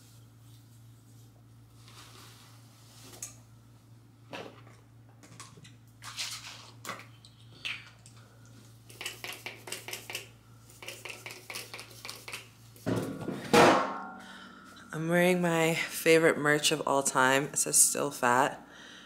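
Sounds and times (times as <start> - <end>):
steady low hum: 7.2 - 19.0
spray bottle spritzing: 10.8 - 12.5.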